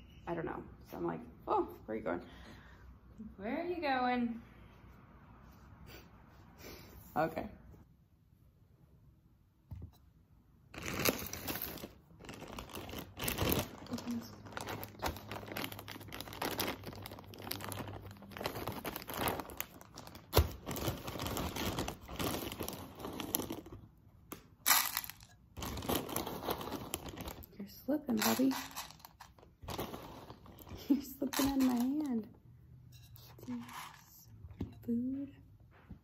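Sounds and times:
plastic bag crinkling: 10.7 - 23.9, 24.7 - 32.2.

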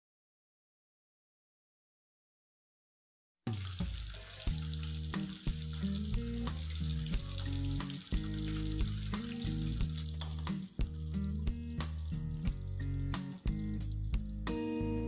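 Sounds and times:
fish sizzling in oil: 3.5 - 10.7
background music: 3.5 - 15.0.

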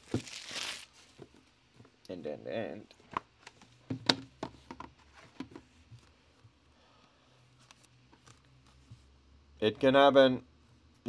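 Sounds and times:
faint handling of packaging: 0.0 - 2.0
box lid clicks and knocks: 3.1 - 5.6.

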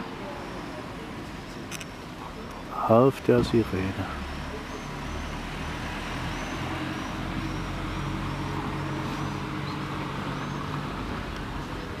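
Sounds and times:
road noise: 0.0 - 12.0
vehicle engine humming: 0.0 - 12.0.

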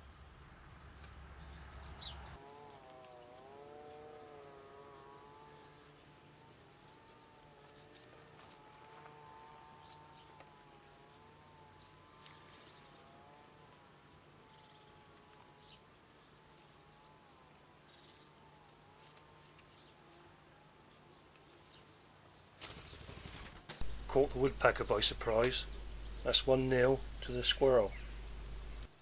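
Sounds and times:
flying insect buzzing: 2.4 - 21.8.

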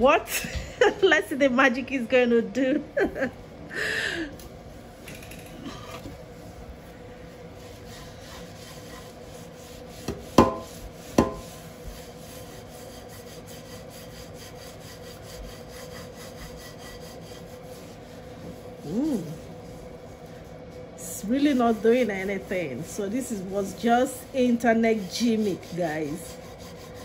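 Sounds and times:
paper towel scrubbing a pan: 6.1 - 27.0
sharp metallic knocks: 10.4 - 11.5.

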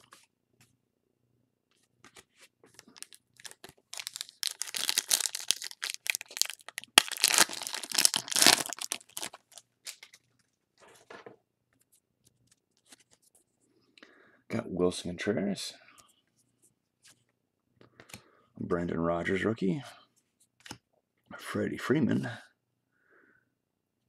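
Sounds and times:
foil wrapper tearing and crinkling: 2.8 - 10.1.

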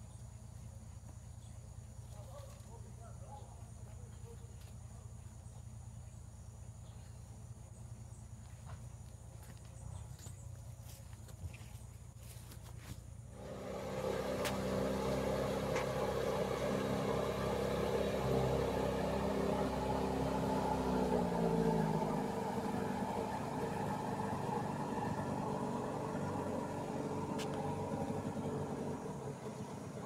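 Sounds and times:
outboard motor passing: 13.3 - 30.0.

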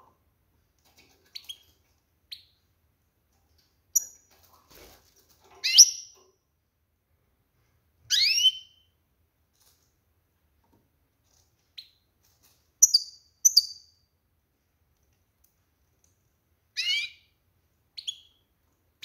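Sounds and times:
bird chirping: 5.6 - 6.2, 8.1 - 8.9, 12.8 - 14.1, 16.8 - 17.4, 18.0 - 18.5.

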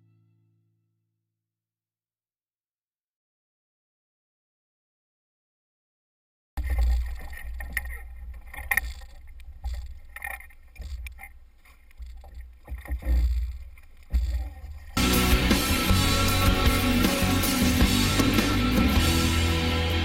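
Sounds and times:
water sounds: 6.6 - 20.0
rock music with guitar: 15.0 - 20.0.

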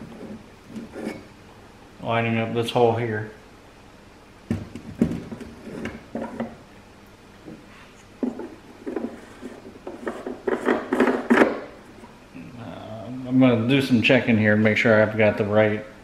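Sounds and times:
plastic scraping: 8.2 - 11.7.

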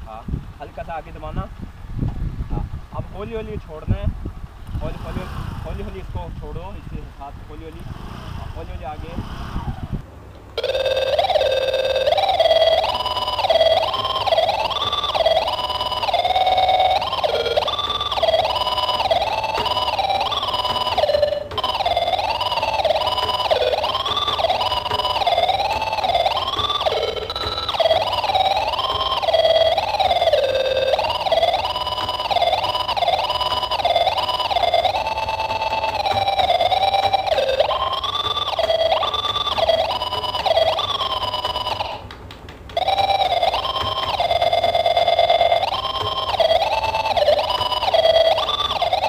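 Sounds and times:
siren-like electronic tone: 10.6 - 42.1, 42.8 - 49.0
wailing melody: 10.6 - 49.0.

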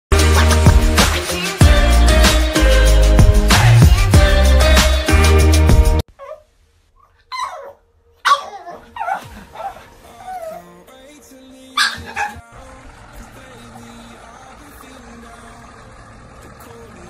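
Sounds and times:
upbeat intro music: 0.1 - 6.0
dog whimpering and yipping: 6.2 - 10.8, 11.8 - 12.4.

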